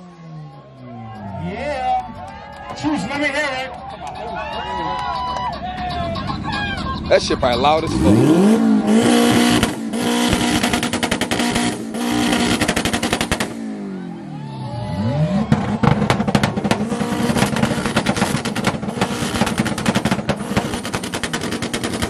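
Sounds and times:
exhaust pops crackling: 0:00.0 - 0:13.9, 0:15.4 - 0:22.0
car engine revving on limiter: 0:07.0 - 0:22.0.

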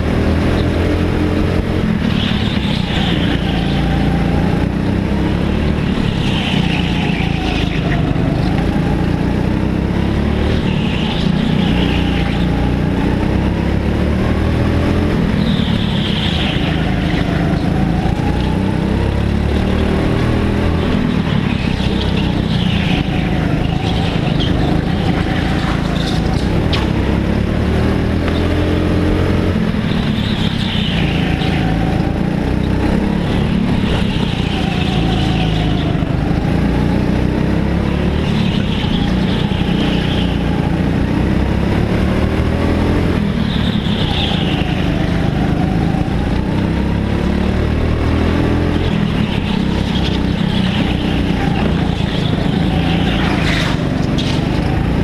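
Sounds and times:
go-kart engines racing: 0:00.0 - 0:55.0
high-pitched engine bursts: 0:05.4 - 0:08.4, 0:10.0 - 0:13.6, 0:41.8 - 0:55.0.

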